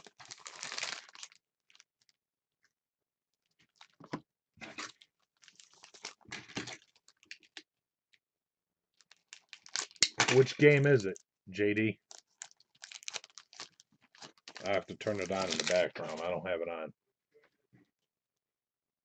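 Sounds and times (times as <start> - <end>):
foil wrapper crinkling and tearing: 0.0 - 2.2, 3.4 - 4.0, 4.6 - 7.6, 8.9 - 11.2, 12.0 - 16.3.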